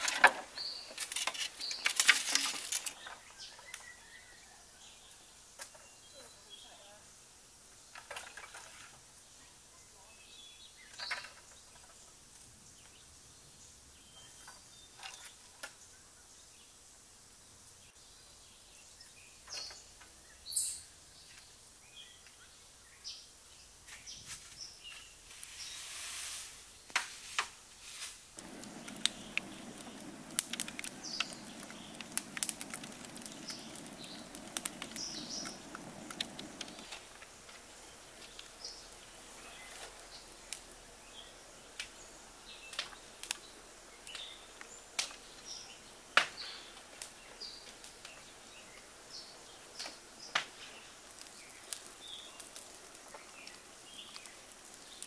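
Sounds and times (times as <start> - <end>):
bird chirps: 18.1 - 21.4, 28.4 - 37.1
low rushing noise with crackles: 28.3 - 45.3.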